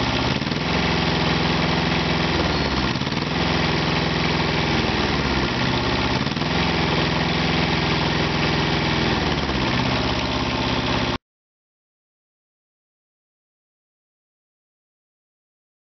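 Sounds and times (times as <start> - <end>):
diesel engine running: 0.0 - 11.2.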